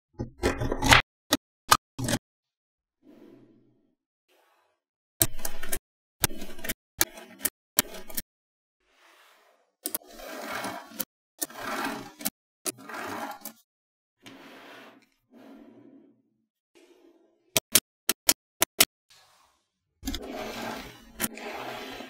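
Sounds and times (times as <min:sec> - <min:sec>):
magnetic balls clicking and scraping: 0:05.2 - 0:08.2, 0:20.0 - 0:22.0.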